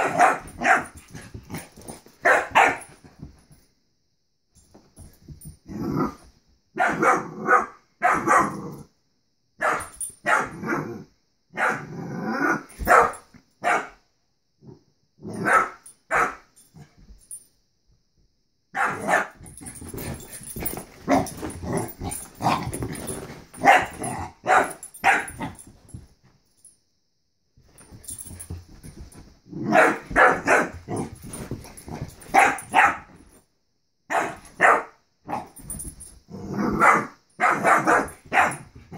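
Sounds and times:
dog barking: 0:00.0 - 0:00.9, 0:02.2 - 0:02.9, 0:06.8 - 0:08.6, 0:09.6 - 0:10.6, 0:11.5 - 0:11.9, 0:12.8 - 0:14.0, 0:15.4 - 0:16.4, 0:18.7 - 0:19.4, 0:23.6 - 0:25.5, 0:29.7 - 0:30.8, 0:32.3 - 0:33.1, 0:34.1 - 0:35.0, 0:36.8 - 0:38.6.

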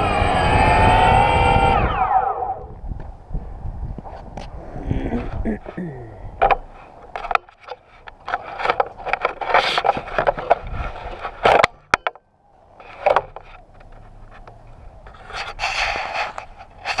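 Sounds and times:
camera handling scraping: 0:06.4 - 0:11.8, 0:15.1 - 0:17.0
sharp clicks and knocks: 0:06.4 - 0:12.2, 0:12.8 - 0:14.6.

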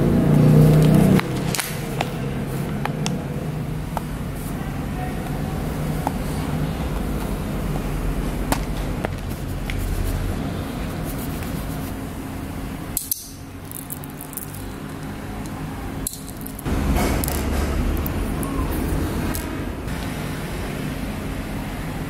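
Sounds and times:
low rumble: 0:16.4 - 0:19.9.

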